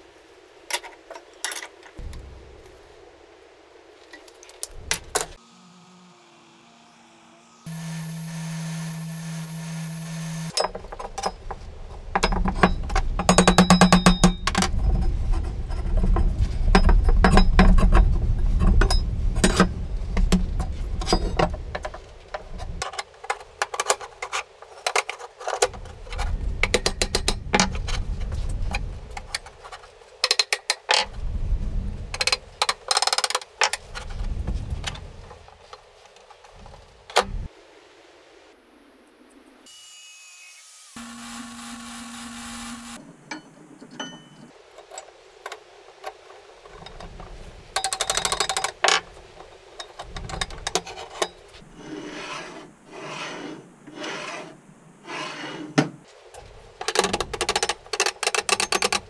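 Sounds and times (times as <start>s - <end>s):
steady hum: 2.0s - 22.8s.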